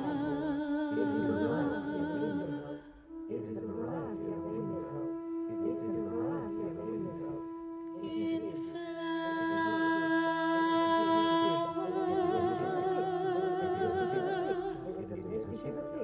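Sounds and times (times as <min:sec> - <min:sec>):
woman singing wordless note: 0:00.0 - 0:03.1, 0:08.0 - 0:15.0.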